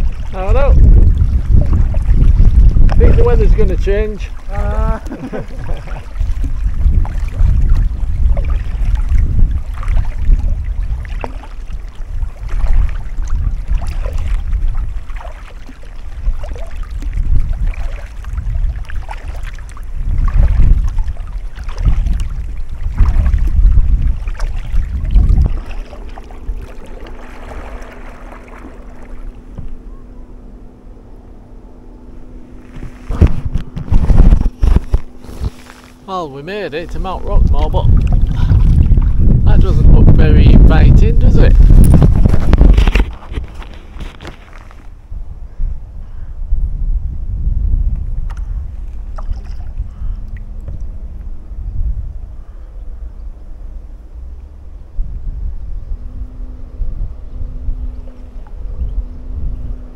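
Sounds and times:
paddle splashing in water: 0.0 - 3.3, 3.9 - 29.9, 32.4 - 36.2, 36.8 - 39.3, 41.5 - 45.0, 48.2 - 50.9
steady low hum: 0.0 - 59.9
wind buffeting microphone: 0.0 - 59.9.

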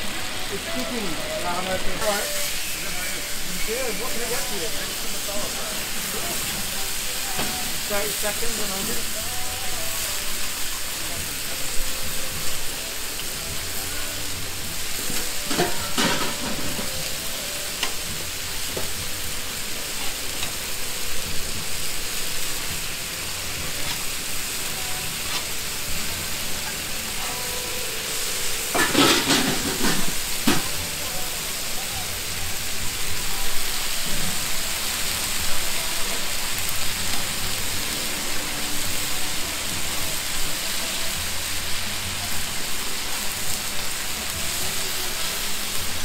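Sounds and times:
chicken sizzling on a griddle: 0.0 - 46.0
metal tongs scraping griddle: 14.9 - 18.1, 27.9 - 30.8.

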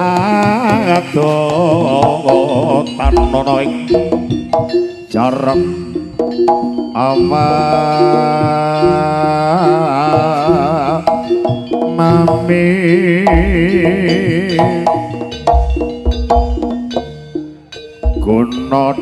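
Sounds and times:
live traditional ensemble music: 0.0 - 19.0
wavering melody line: 0.0 - 19.0
deep drum thuds: 3.0 - 4.8.

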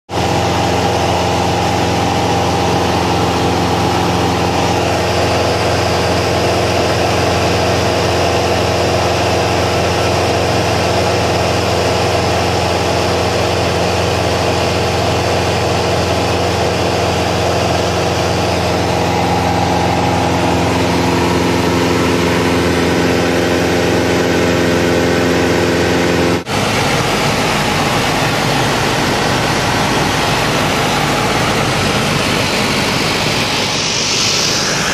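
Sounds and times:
aircraft engine drone: 0.1 - 34.9
steady tonal hum: 26.4 - 34.9.

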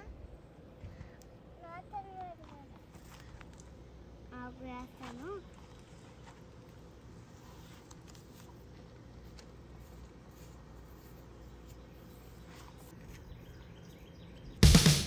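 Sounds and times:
loud music: 14.6 - 15.0.

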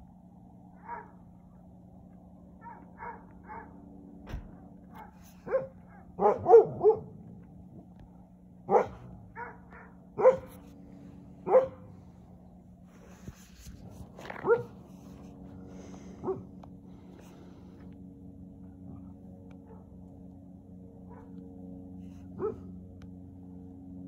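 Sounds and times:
steady low hum: 0.0 - 24.0
dog barking in yips: 5.0 - 7.1, 8.7 - 10.6, 11.5 - 11.8, 14.4 - 14.7.

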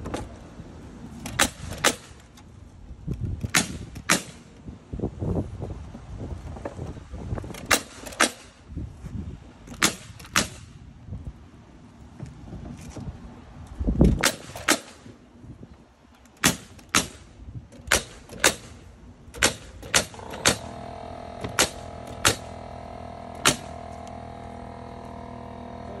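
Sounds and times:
nail gun firing into wood: 1.2 - 2.3, 3.4 - 4.6, 7.5 - 8.6, 9.7 - 10.8, 14.1 - 15.1, 16.4 - 20.8, 21.4 - 22.6, 23.3 - 24.0.

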